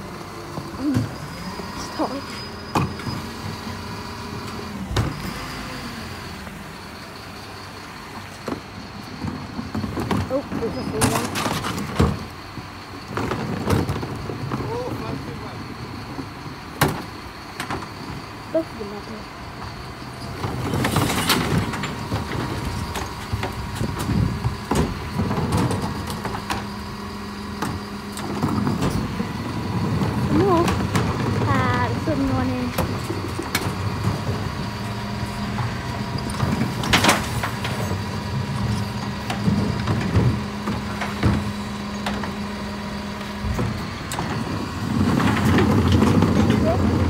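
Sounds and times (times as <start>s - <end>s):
lorry engine running: 0.0s - 47.0s
bin lifter knocks and clatters: 36.2s - 38.1s.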